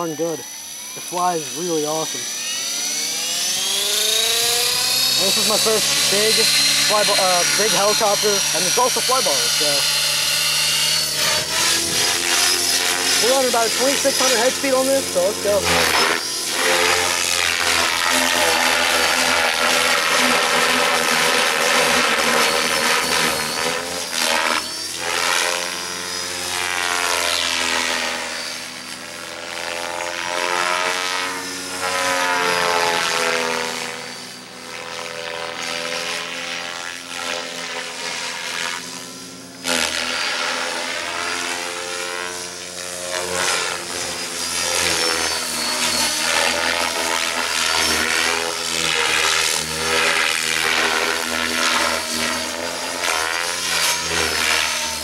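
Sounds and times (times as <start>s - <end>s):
rotor blades whooshing: 0.0s - 29.2s
helicopter motor whine: 0.0s - 55.0s.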